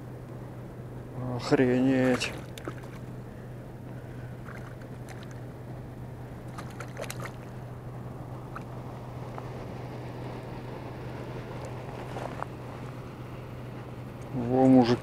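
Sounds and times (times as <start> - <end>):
steady low hum: 0.0 - 15.0
faint rustles: 11.6 - 13.0.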